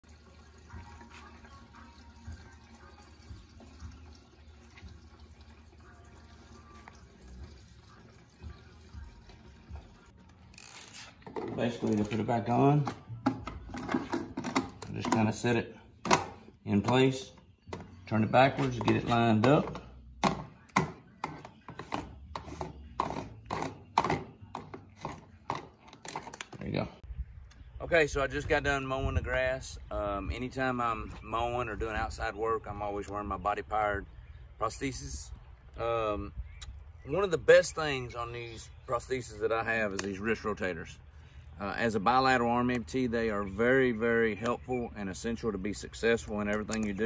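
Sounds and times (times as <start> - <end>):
fuel pouring into tank: 0.0 - 10.1.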